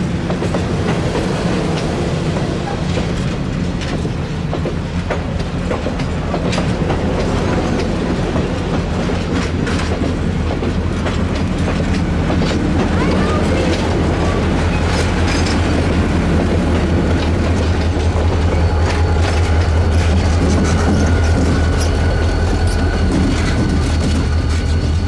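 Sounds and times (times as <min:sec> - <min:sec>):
diesel locomotive engine rumble: 0:00.0 - 0:25.0
wheels clicking over rail joints: 0:00.0 - 0:25.0.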